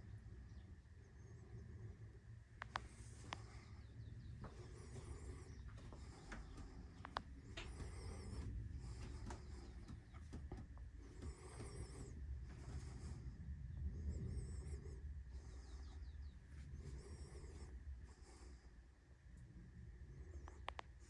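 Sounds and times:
faint birdsong warbling: 0.0s - 18.8s
steady low rumble: 0.0s - 21.0s
light clicks: 2.6s - 3.5s.

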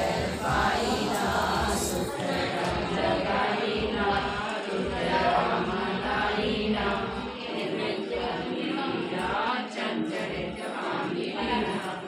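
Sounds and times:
women singing together: 0.0s - 12.0s.

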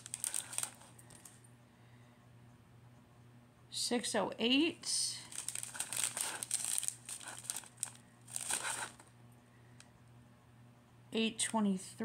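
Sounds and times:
plastic bags crinkling: 0.0s - 1.3s, 5.2s - 9.1s.

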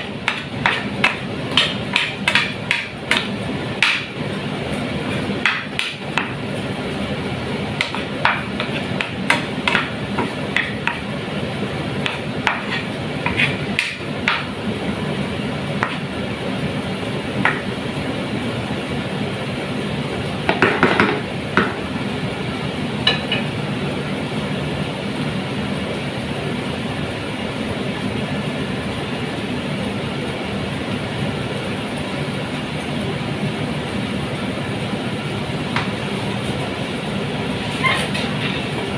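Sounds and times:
wooden spoon scraping frying pan: 12.0s - 13.8s.

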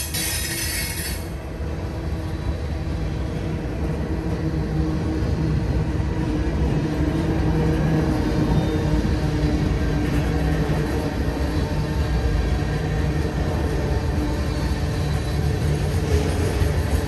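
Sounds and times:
freight train rumbling on rails: 0.0s - 17.0s.

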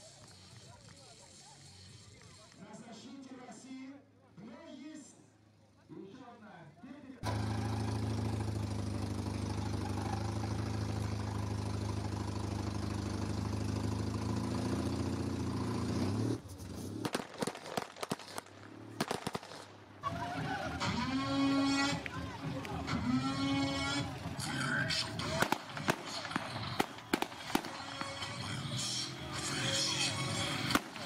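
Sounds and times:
sharp clicks and pops: 16.6s - 19.8s, 25.2s - 28.2s.

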